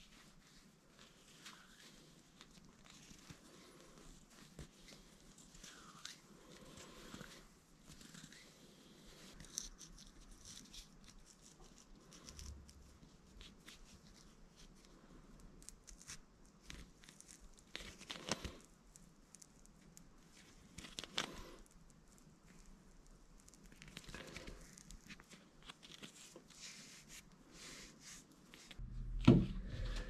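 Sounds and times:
paper towel rustling and crinkling: 0.0s - 14.9s, 23.4s - 28.8s.

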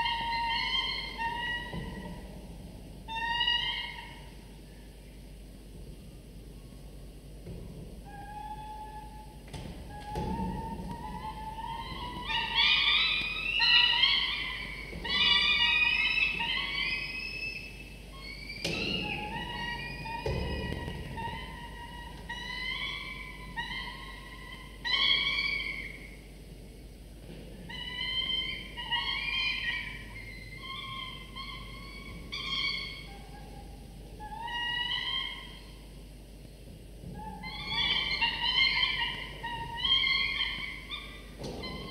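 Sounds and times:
falcon chicks wailing begging calls: 0.0s - 2.2s, 10.0s - 26.2s, 27.7s - 35.8s, 37.2s - 41.9s.

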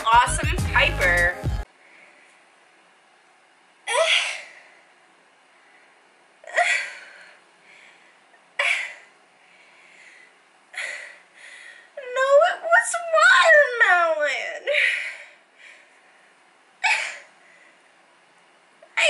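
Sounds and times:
woman's sharp breathy sounds: 5.6s - 12.0s.

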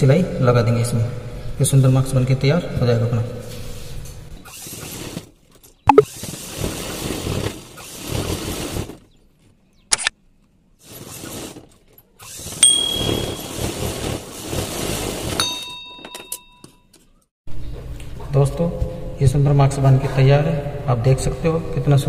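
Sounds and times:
sharp click: 9.9s - 10.1s
ringing bell-like chime: 12.6s - 13.6s, 15.4s - 16.7s.

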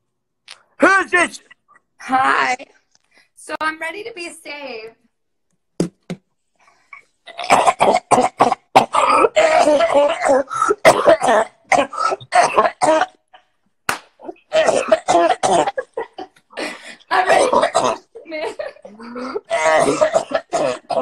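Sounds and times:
person yelling and retching: 7.3s - 13.2s, 14.2s - 15.8s, 17.1s - 18.1s, 18.9s - 21.0s.

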